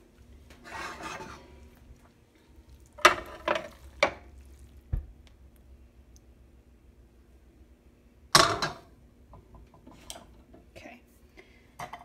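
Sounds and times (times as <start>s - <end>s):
metal spoon scraping dish: 0.6s - 1.4s.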